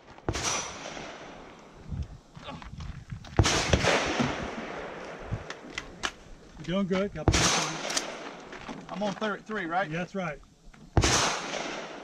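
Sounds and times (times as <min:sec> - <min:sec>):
loud gunshots with echo: 0:07.3 - 0:08.3, 0:11.0 - 0:12.0.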